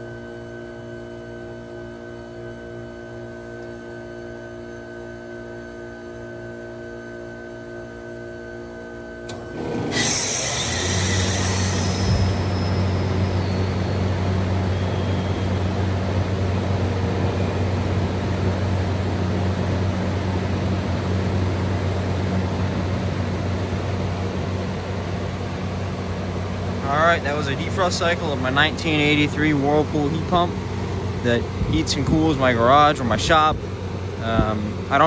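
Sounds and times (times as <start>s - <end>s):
compressor and fan humming: 0.0s - 35.0s.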